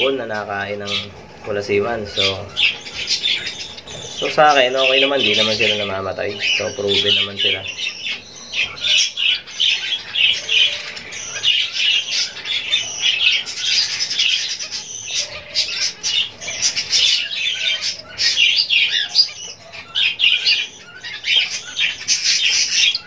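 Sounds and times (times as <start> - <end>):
caged birds chirping: 0.0 - 23.0.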